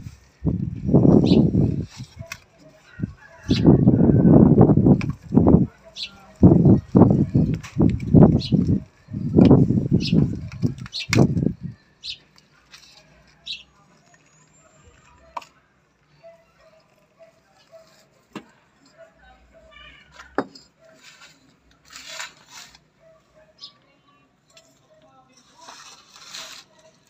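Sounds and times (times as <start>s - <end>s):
soil rustling: 20.8s - 22.9s, 25.4s - 27.0s.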